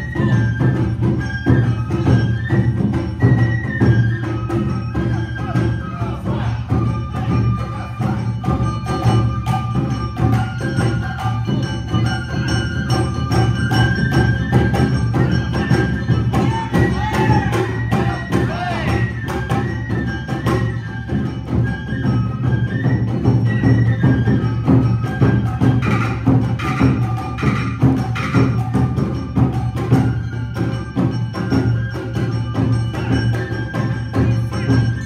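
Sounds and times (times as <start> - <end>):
bamboo flute melody: 0.0 - 35.0
drums: 0.0 - 35.0.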